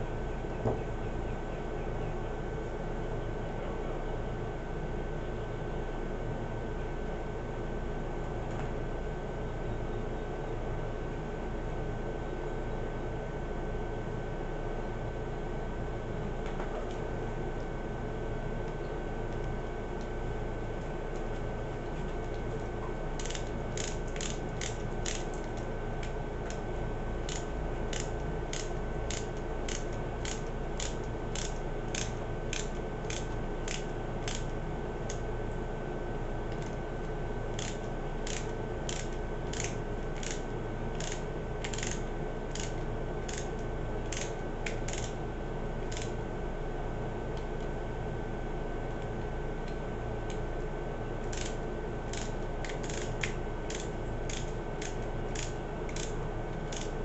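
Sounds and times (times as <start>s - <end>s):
screwdriver clicking: 23.2s - 26.6s, 27.3s - 34.5s, 37.5s - 45.2s, 45.9s - 46.1s, 51.3s - 57.0s.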